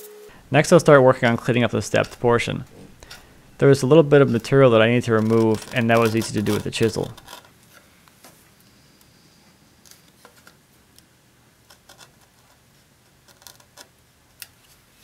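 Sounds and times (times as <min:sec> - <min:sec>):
chisel scraping wood: 0:00.6 - 0:07.5.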